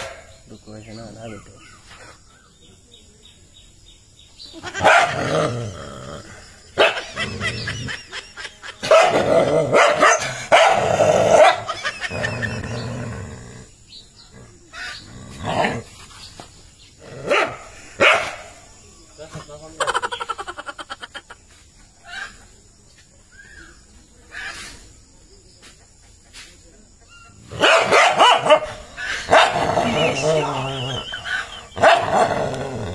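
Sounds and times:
dog barking: 0.0s - 0.3s, 4.8s - 5.3s, 6.8s - 7.2s, 8.8s - 11.8s, 17.2s - 18.6s, 27.5s - 29.9s, 31.8s - 32.4s.

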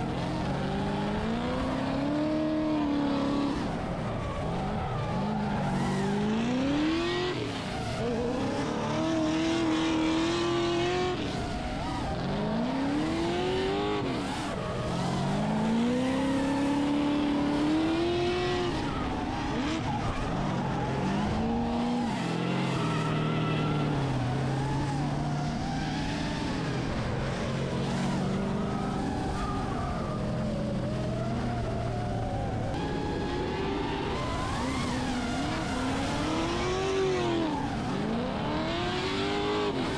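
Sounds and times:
tyres screeching and skidding: 0.4s - 31.1s
car engine revving hard: 33.0s - 39.9s.

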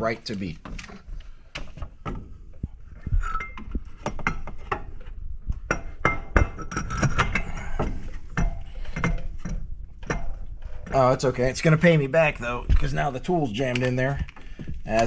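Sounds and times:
metal clinks and knocks: 0.6s - 12.0s.

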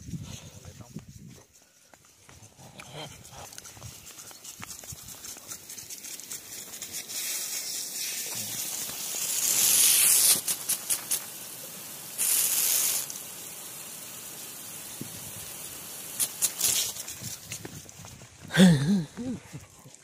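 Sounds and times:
irrigation sprinkler spraying: 0.6s - 20.0s
water spatters: 3.2s - 18.0s.

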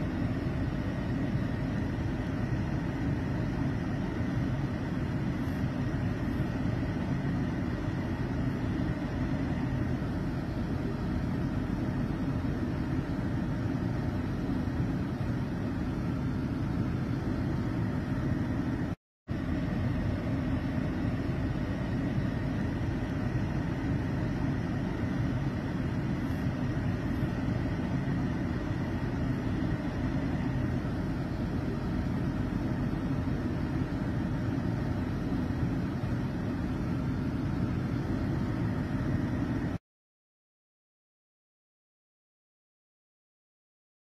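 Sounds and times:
low street noise rumble: 0.0s - 39.8s.

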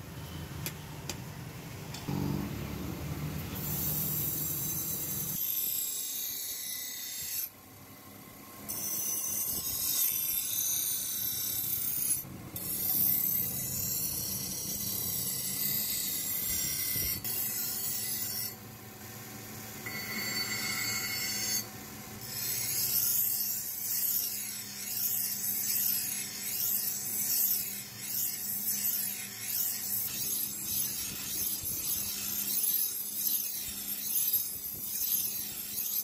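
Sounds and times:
blade on grinding wheel: 3.3s - 7.6s, 8.7s - 18.6s, 19.8s - 36.0s.

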